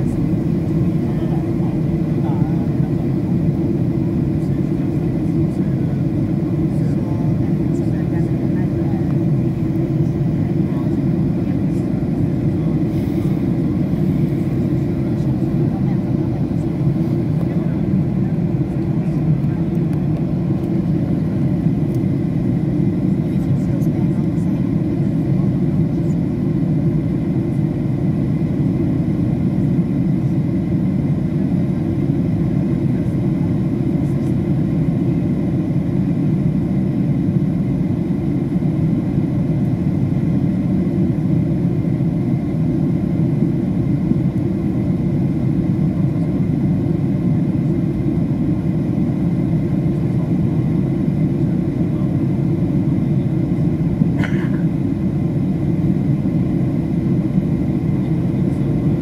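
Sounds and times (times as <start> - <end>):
airliner engine drone in cabin: 0.0 - 59.0.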